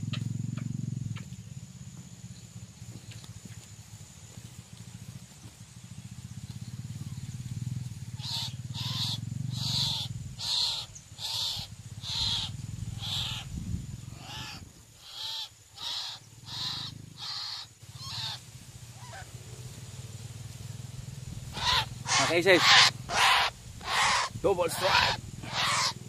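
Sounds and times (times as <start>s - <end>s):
waterhen calling: 8.2s - 13.5s, 14.2s - 18.4s, 21.5s - 26.0s.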